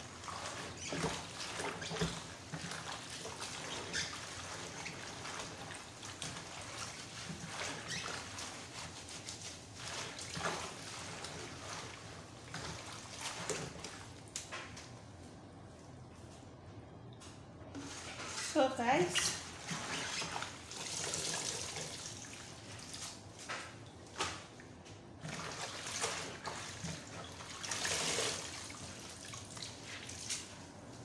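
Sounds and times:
leaves sloshing in water: 0.0 - 14.6, 17.8 - 31.0.

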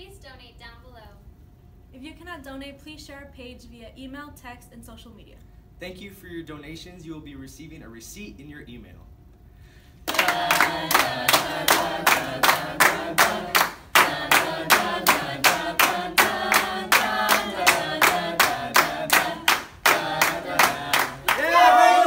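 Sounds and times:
people clapping in rhythm: 10.0 - 22.0
voices singing along: 10.1 - 22.0.

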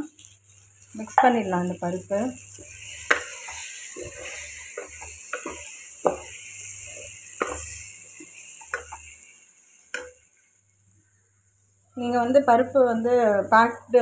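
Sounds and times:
food being stirred in pot: 0.0 - 10.6
pot sizzling: 0.0 - 14.0
utensil knocking against pot: 7.4 - 7.7.

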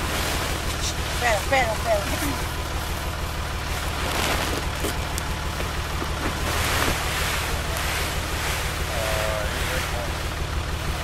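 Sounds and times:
engine humming: 0.0 - 11.0
nets and canvas sheet rustling: 3.8 - 5.2, 6.0 - 8.9.

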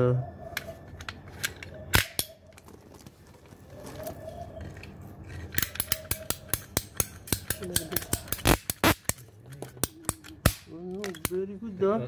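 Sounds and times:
pipe cutter ratchet clicking: 5.6 - 9.2
pipe cutter snapping: 5.6 - 11.4.

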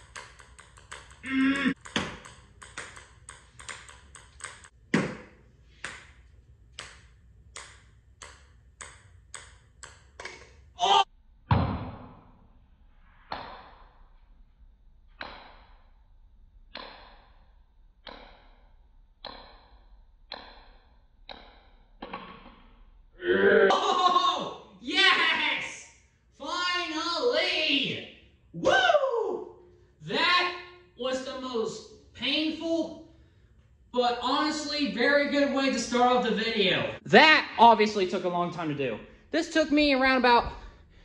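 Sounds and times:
ball bouncing on concrete floor: 0.0 - 10.6, 11.5 - 12.5, 13.2 - 14.2, 15.1 - 15.9, 16.7 - 23.0.

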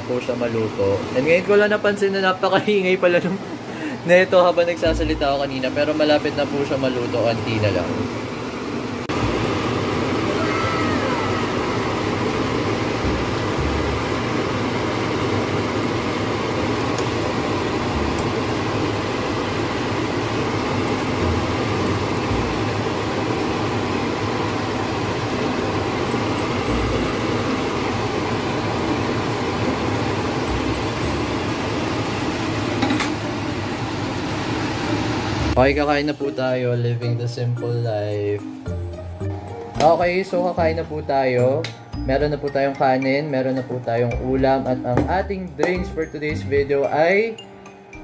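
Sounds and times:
oil sizzling in a saucepan: 9.1 - 35.6
low hum: 10.6 - 14.7, 21.0 - 23.1, 26.3 - 28.0.

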